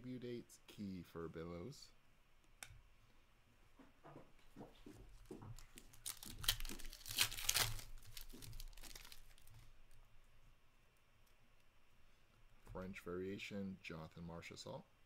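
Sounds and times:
foil wrapper tearing and crinkling: 5.6s - 9.5s.

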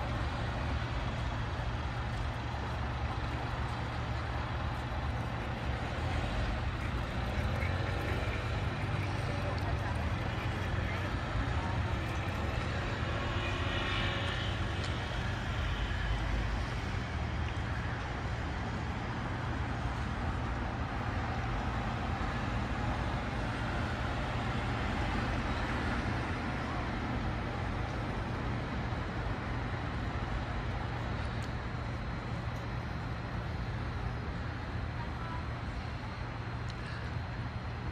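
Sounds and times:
road traffic rumble: 0.0s - 37.9s.

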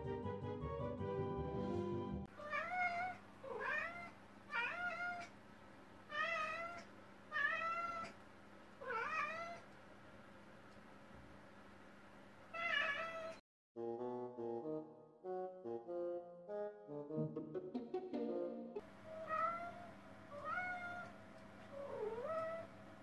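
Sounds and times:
background music: 0.0s - 2.3s, 14.0s - 18.8s
cat meowing: 2.4s - 5.3s, 6.1s - 8.2s, 8.8s - 9.7s, 12.6s - 13.4s, 19.1s - 22.8s.

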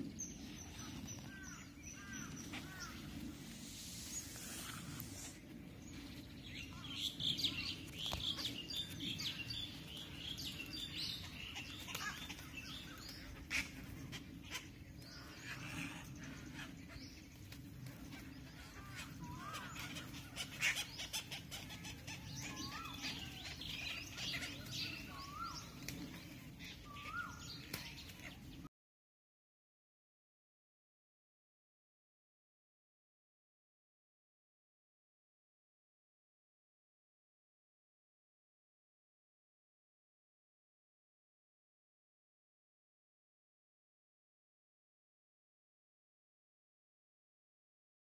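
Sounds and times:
birds chirping: 0.0s - 28.7s.

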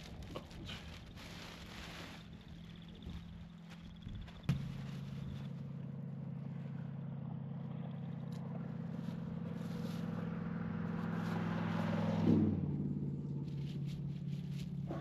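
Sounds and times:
car passing on dirt road: 4.6s - 15.0s.

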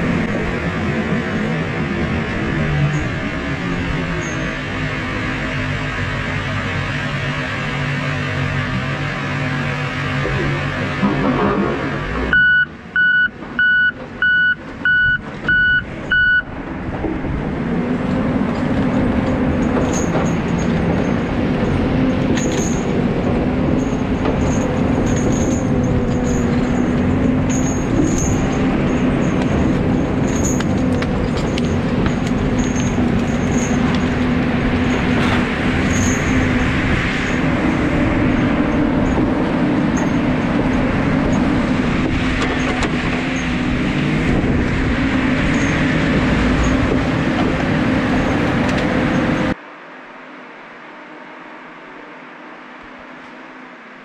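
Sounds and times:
diesel engine running: 0.0s - 54.0s
reversing alarm beeping: 12.3s - 16.5s.

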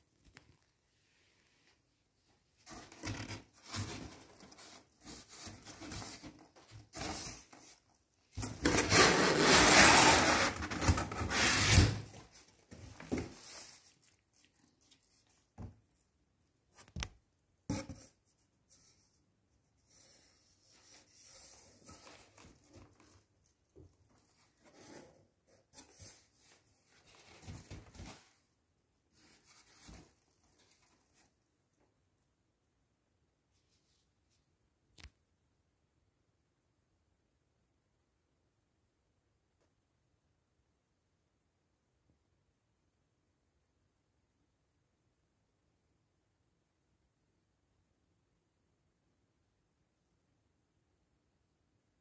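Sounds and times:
cardboard rubbing and scraping: 8.4s - 14.0s.

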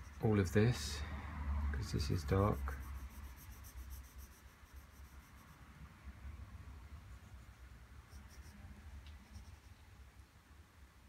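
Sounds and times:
pencil scratching on paper: 2.1s - 5.6s, 7.1s - 8.6s, 9.2s - 9.7s.

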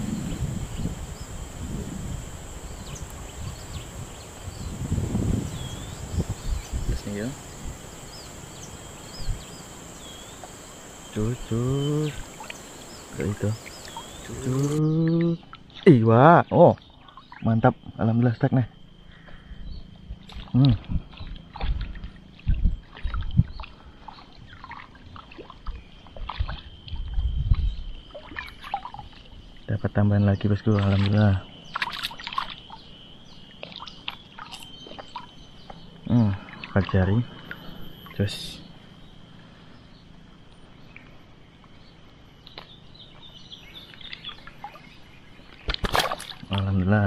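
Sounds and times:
outdoor background noise: 0.0s - 47.0s
small birds chirping: 0.0s - 47.0s
fish splashing in water: 20.2s - 27.1s, 28.0s - 29.6s, 30.8s - 35.8s, 43.8s - 46.6s.

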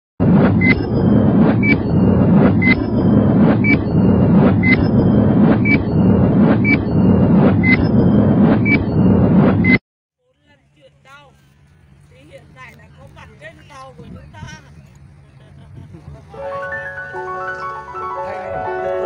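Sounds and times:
low rumble: 0.2s - 9.8s
high beep: 0.4s - 9.8s.

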